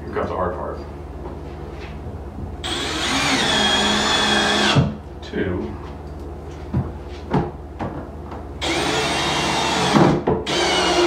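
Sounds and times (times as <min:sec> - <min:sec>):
cordless drill driving screw: 0:02.6 - 0:04.8, 0:08.6 - 0:11.0.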